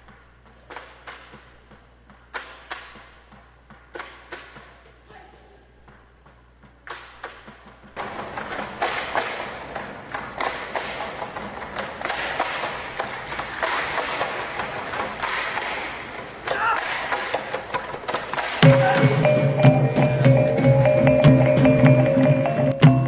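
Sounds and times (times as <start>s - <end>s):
bamboo poles clacking: 0.0s - 5.0s, 5.8s - 23.0s
dancers' footsteps: 0.0s - 5.1s, 5.8s - 23.0s.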